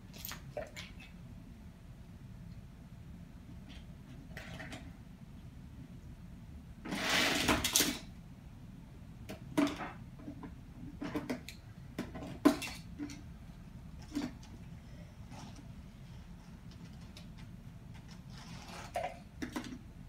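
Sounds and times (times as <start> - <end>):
toy trucks scraping and rattling: 6.9 - 8.0, 17.9 - 19.8.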